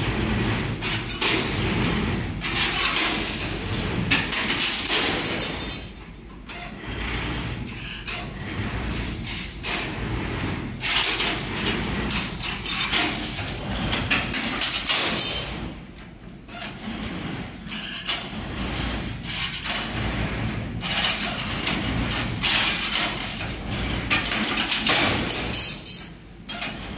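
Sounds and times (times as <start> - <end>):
clatter of metal knocks and scraping: 0.0 - 26.9.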